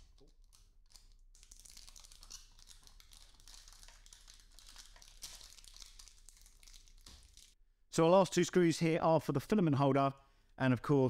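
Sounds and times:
plastic film peeling: 0.0s - 7.6s.

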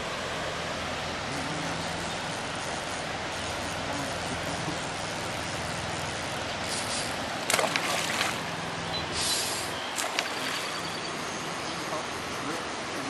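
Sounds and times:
creek water rushing: 0.0s - 13.0s
fish splashing at surface: 6.7s - 8.5s, 9.2s - 10.8s.

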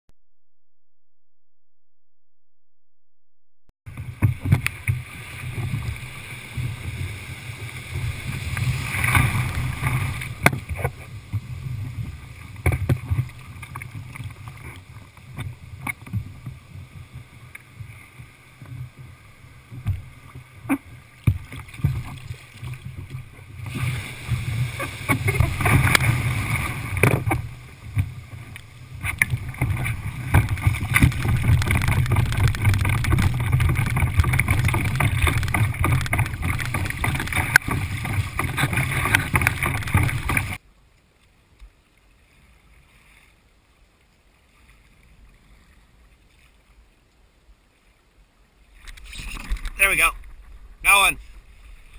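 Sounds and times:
wind rumble on microphone: 3.9s - 40.6s
surf splashing around kayak: 3.9s - 40.7s, 41.8s - 51.9s
knocks against hull: 9.1s - 11.4s, 12.6s - 13.3s, 21.2s - 23.2s, 25.0s - 28.1s, 29.0s - 40.6s.

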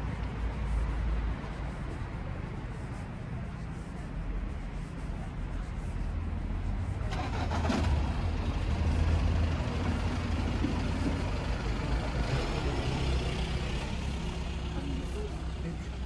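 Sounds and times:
traffic noise: 0.0s - 16.0s
vehicle engine running: 6.6s - 16.0s.

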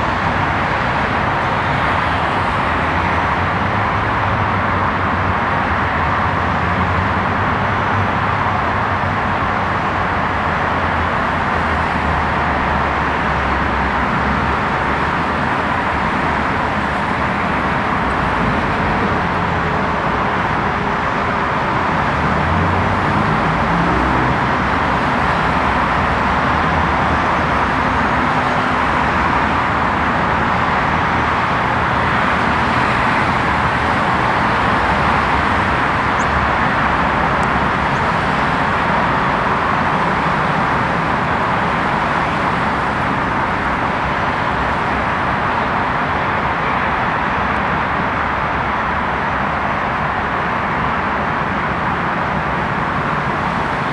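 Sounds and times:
road traffic rushing: 0.0s - 53.9s.

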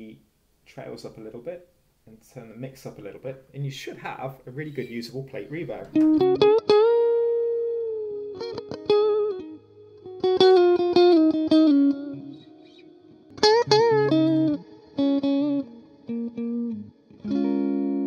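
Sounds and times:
electric guitar with reverb: 5.8s - 18.0s.

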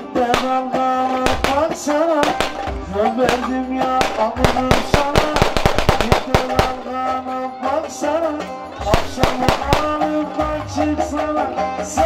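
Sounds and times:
folk dance music: 0.0s - 12.0s
sharp drum strokes: 0.3s - 7.0s, 8.9s - 10.2s.

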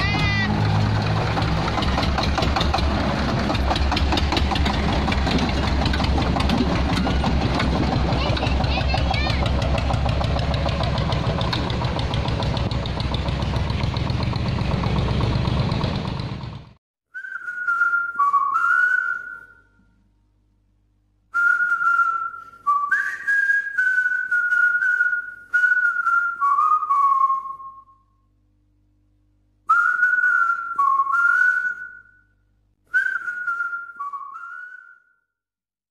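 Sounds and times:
person whistling a tune: 17.1s - 19.8s, 21.3s - 28.1s, 29.7s - 32.3s, 32.9s - 35.3s.

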